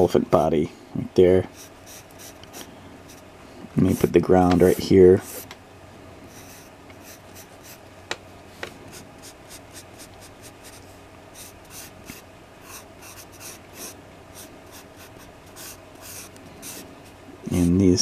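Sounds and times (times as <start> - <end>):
pencil scratching on paper: 1.5 - 2.4, 6.3 - 7.8, 9.2 - 10.8, 11.4 - 16.8.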